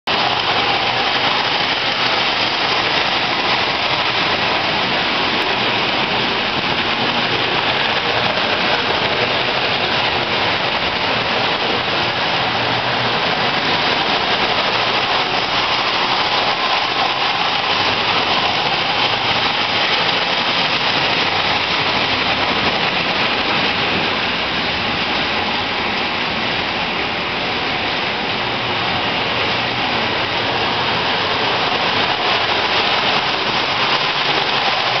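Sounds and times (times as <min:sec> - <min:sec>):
toy trains rattling on tin track: 0:00.1 - 0:27.1, 0:28.1 - 0:35.0.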